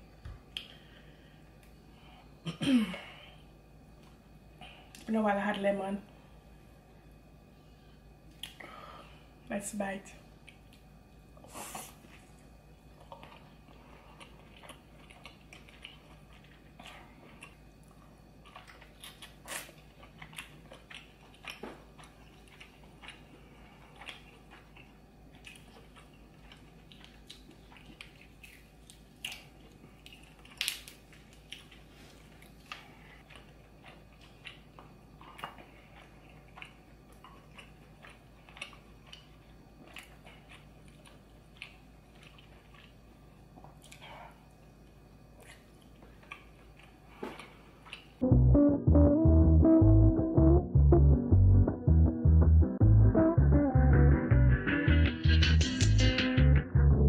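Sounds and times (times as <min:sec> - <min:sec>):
person chewing: 0:08.3 - 0:08.6, 0:11.7 - 0:44.6, 0:45.4 - 0:48.2.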